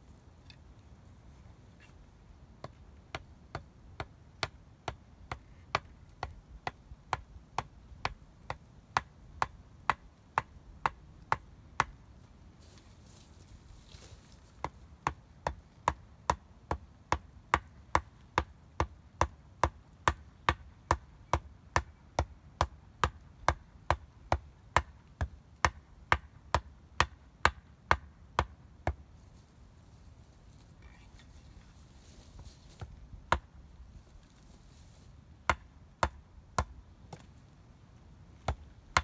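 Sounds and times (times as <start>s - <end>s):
wooden stake being pounded: 2.6s - 12.0s, 14.5s - 29.1s, 32.4s - 34.3s, 35.4s - 37.3s, 38.4s - 39.0s.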